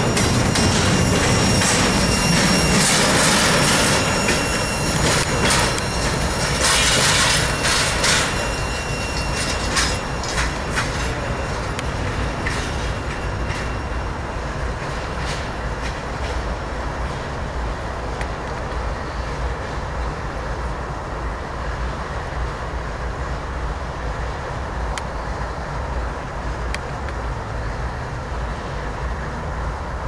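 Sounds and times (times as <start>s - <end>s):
thin wheel squeal: 0.0s - 11.7s
wheels clicking over rail joints: 0.0s - 18.9s
freight train rolling by: 0.0s - 30.0s.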